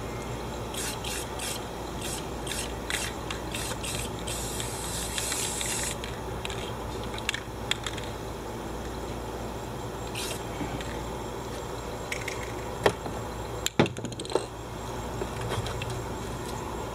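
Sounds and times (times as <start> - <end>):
aerosol spray can hissing: 0.7 - 6.0, 10.1 - 10.4.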